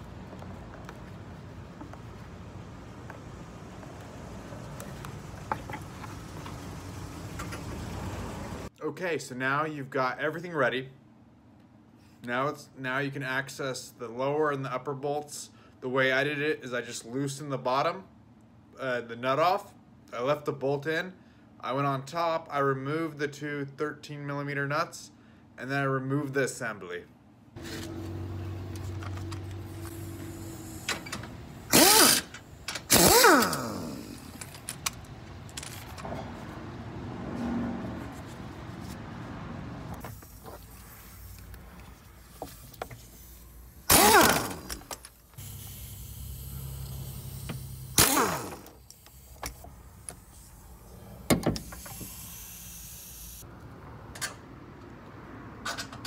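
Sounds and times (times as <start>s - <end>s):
power tool motor whirring: 29.5s - 34.7s, 42.2s - 50.3s, 51.6s - 53.4s.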